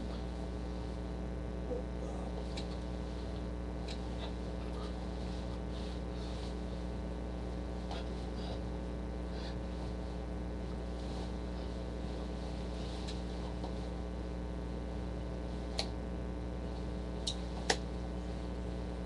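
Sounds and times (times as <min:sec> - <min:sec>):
electrical mains hum: 0:00.0 - 0:19.0
faint rustles: 0:02.0 - 0:14.2.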